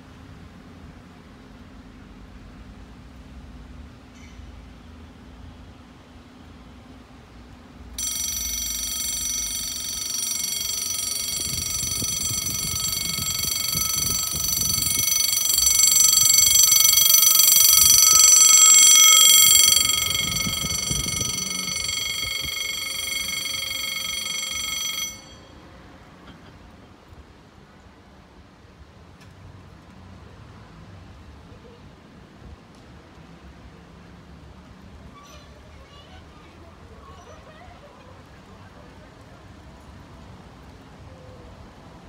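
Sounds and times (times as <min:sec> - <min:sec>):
level crossing warning bell: 0:08.0 - 0:25.7.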